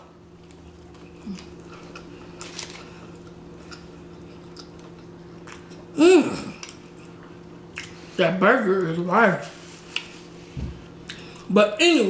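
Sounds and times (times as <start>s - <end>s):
steady low hum: 0.0s - 12.0s
chewing with mouth clicks: 0.4s - 5.9s, 6.5s - 8.2s.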